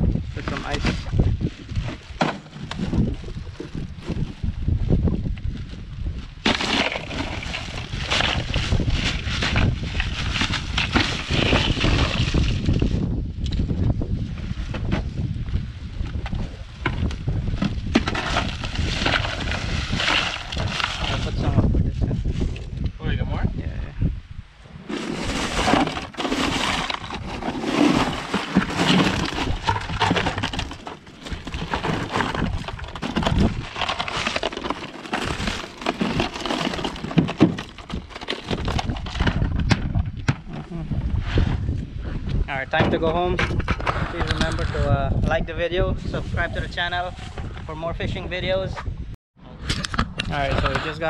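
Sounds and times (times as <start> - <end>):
wind rumble on microphone: 0.0 - 51.0
ice cubes clattering into cooler: 6.4 - 12.7, 18.0 - 21.3, 24.9 - 39.5.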